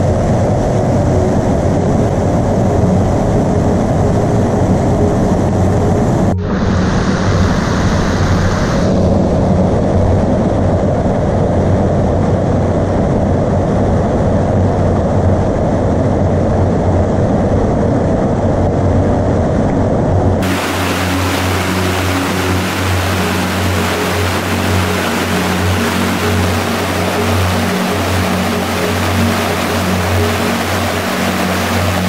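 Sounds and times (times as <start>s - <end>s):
cascading water hiss: 6.5s - 9.0s, 20.4s - 32.0s
water rushing over boulders: 20.4s - 32.0s.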